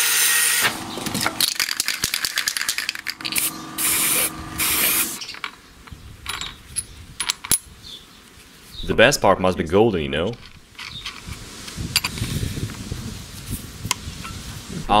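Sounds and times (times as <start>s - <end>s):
spray can hissing: 0.5s - 5.2s
spray can rattling clicks: 1.1s - 4.0s.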